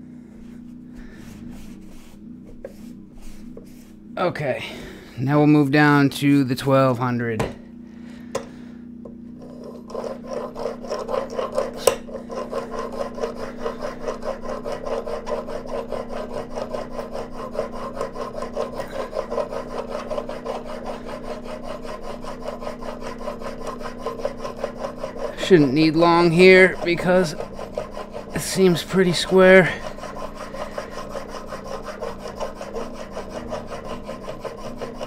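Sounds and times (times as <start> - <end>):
blade scraping on sharpening plate: 9.4 - 35.0.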